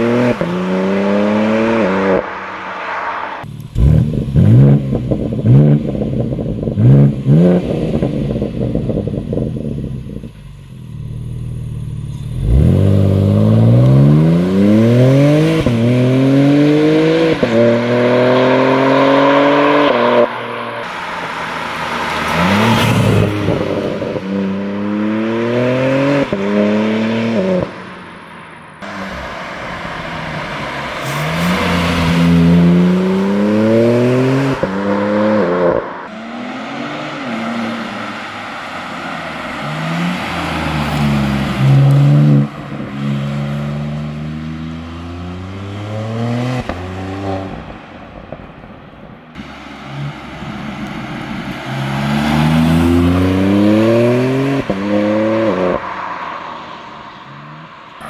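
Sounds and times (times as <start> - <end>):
car engine accelerating: 0.0 - 58.0.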